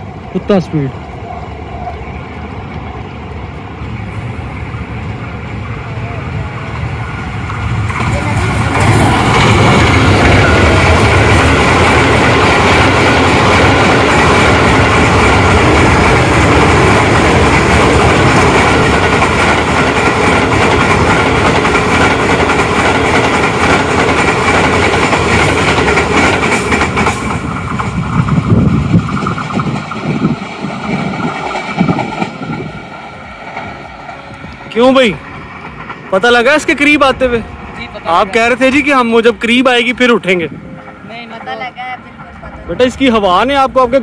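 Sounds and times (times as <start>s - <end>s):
train wheels rattling on rails: 0.0s - 44.0s
wind gusts from passing train: 0.0s - 44.0s.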